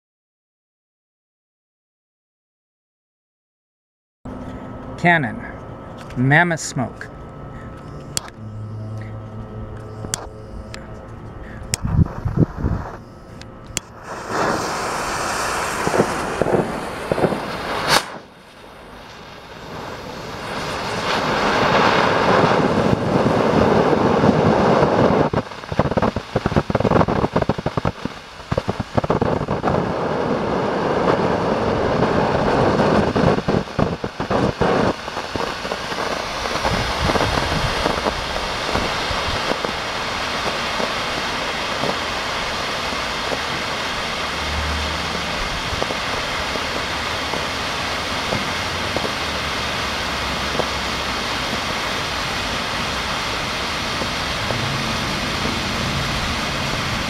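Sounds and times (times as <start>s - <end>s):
fuse sputtering: 7.0s - 57.0s
sharp crack: 13.8s - 19.2s
loud hiss of smoke jetting: 13.8s - 57.0s.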